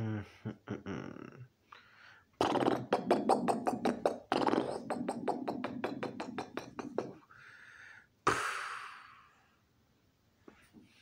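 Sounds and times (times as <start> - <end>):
man making mouth pops: 2.4 - 7.3, 8.3 - 9.0.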